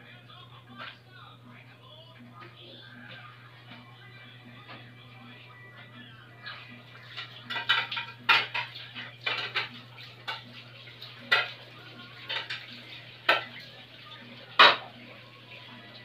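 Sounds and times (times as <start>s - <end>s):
cutlery clinking on plates: 7.1s - 11.6s, 12.2s - 13.6s, 14.6s - 14.9s.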